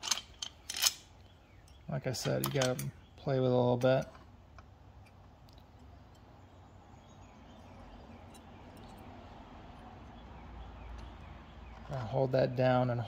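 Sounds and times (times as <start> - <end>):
small metal parts clicking: 0.0 - 1.1
faint background hum: 0.0 - 13.0.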